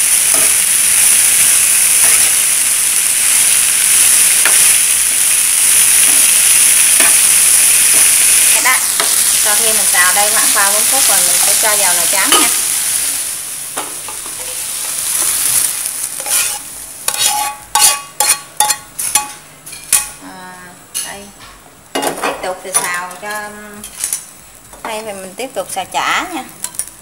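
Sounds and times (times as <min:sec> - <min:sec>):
vegetables sizzling in oil: 0:00.0 - 0:27.0
metal spatula scraping pan: 0:16.2 - 0:19.9.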